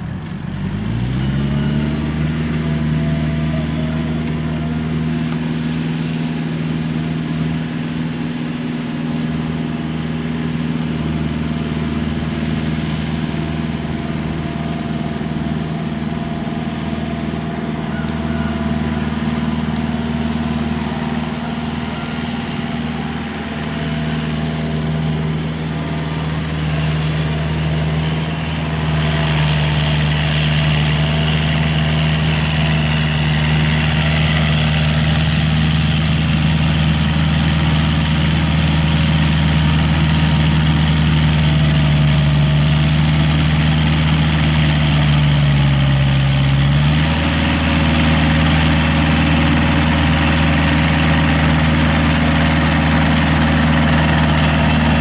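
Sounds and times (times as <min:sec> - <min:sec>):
tractor diesel engine running: 0:00.0 - 0:55.0.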